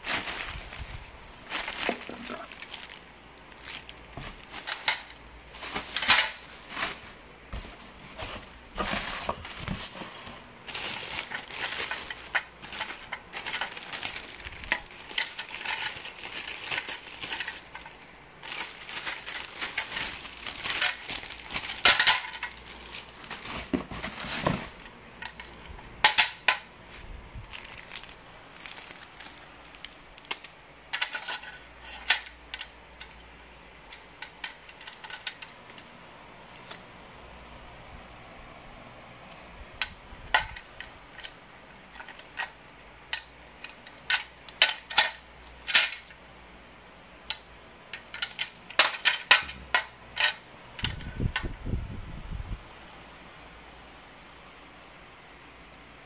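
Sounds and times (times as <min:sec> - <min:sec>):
plastic packaging crinkling: 0:00.0 - 0:31.4
metal parts clinking: 0:03.7 - 0:09.9, 0:10.7 - 0:26.7, 0:27.5 - 0:35.9, 0:39.8 - 0:46.2, 0:47.3 - 0:51.5.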